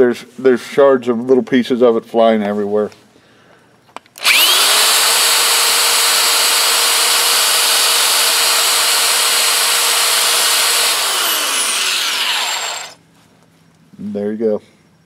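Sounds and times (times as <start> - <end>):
drill whining: 4.2 - 13.0.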